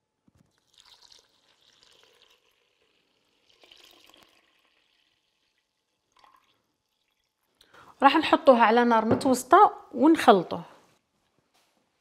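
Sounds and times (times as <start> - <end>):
milk pouring into a saucepan: 0.4 - 7.6.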